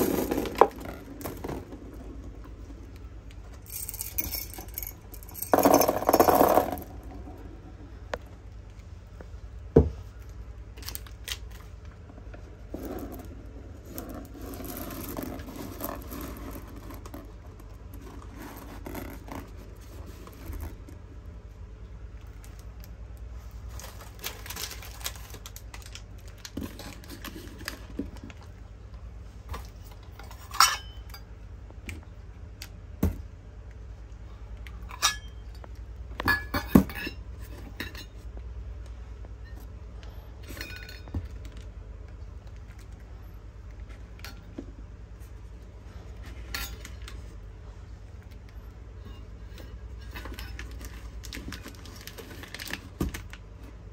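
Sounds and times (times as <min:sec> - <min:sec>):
candies clinking and knocking: 0:03.6 - 0:07.4.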